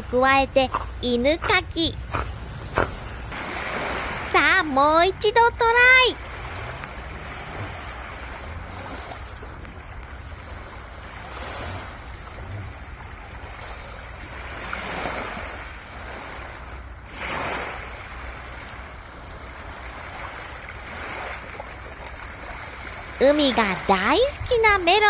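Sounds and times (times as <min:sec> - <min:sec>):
waves washing onto pebbles: 0:17.1 - 0:18.0.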